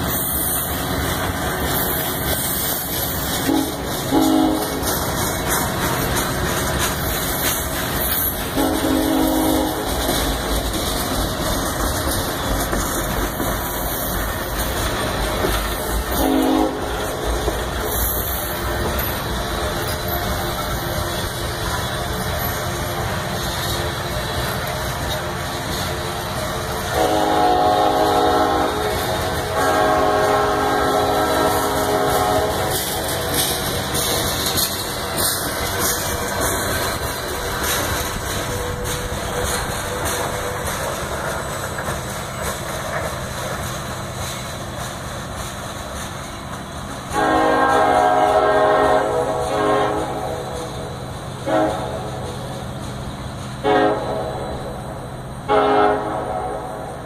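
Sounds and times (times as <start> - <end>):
train wheels clattering on rails: 0.0 - 57.0
locomotive horn blasts: 3.4 - 4.9, 8.5 - 10.2, 16.1 - 17.2, 26.8 - 33.6, 47.1 - 50.8, 51.4 - 52.4, 53.6 - 57.0.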